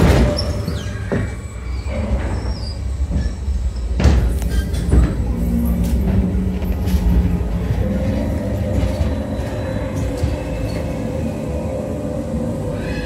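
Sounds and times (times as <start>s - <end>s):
ride car rumbling on track: 0.0s - 13.0s
steady hum: 2.8s - 13.0s.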